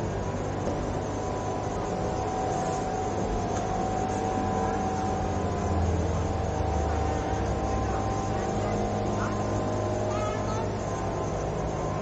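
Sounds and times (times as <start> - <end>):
busy indoor market noise: 0.0 - 12.0
faint steady tones: 0.0 - 12.0
low mechanical hum: 0.0 - 12.0.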